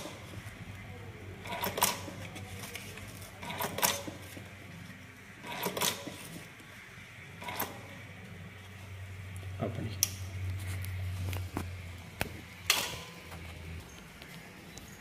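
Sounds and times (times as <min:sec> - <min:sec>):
coding machine print head striking: 0:00.0 - 0:00.8, 0:01.4 - 0:04.8, 0:05.4 - 0:06.6, 0:07.4 - 0:08.0, 0:12.2 - 0:14.4.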